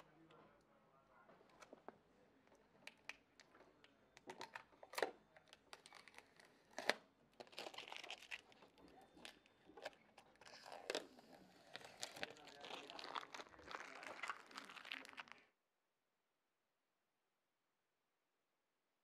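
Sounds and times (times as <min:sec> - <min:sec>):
plastic film crinkling: 0:04.2 - 0:15.5
plastic film snapping: 0:11.7 - 0:15.4.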